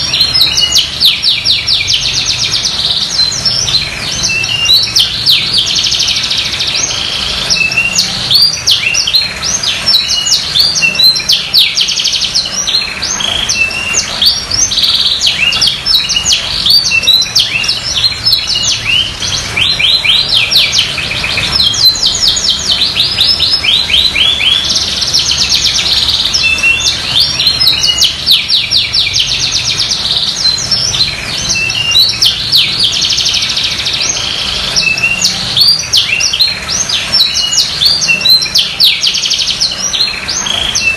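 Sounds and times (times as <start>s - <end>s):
canary singing trills: 0.0s - 40.9s.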